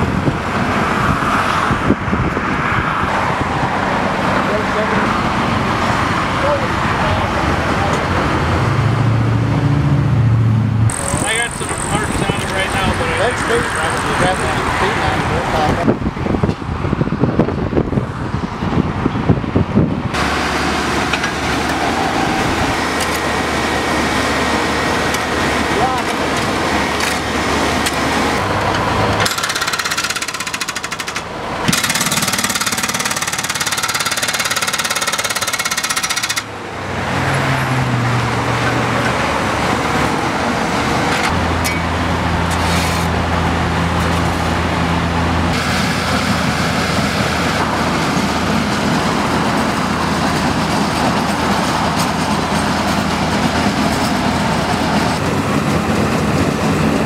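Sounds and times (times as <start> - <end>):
diesel truck engines running: 0.0 - 57.0
highway traffic: 0.0 - 57.0
steady machine noise: 10.4 - 15.9, 20.1 - 57.0
hydraulic breaker hammering concrete: 10.9 - 12.8, 29.2 - 36.5.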